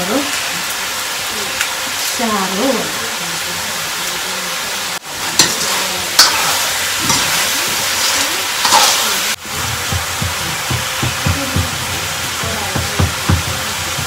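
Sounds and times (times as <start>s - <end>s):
spices sizzling in hot oil: 0.0s - 14.0s
metal spoon clinking on pan: 5.4s - 9.2s.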